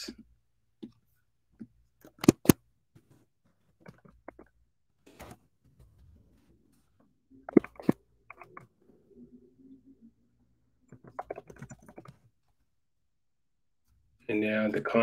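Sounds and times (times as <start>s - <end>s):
typing on computer keyboard: 10.9s - 12.2s.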